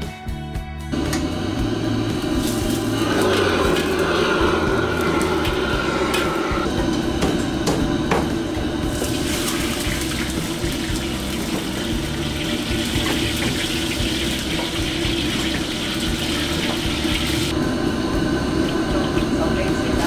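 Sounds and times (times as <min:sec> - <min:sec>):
wok burner roar: 0:00.9 - 0:20.0
oil poured into wok: 0:08.9 - 0:17.5.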